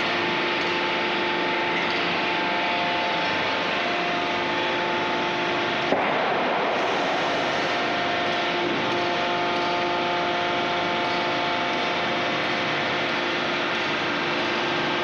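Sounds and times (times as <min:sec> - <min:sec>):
machinery drone with hum: 0:00.0 - 0:15.0.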